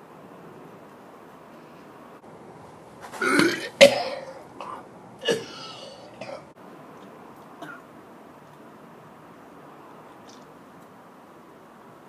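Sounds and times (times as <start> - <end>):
man gagging and retching: 3.2 - 6.4
man coughing: 3.2 - 6.5.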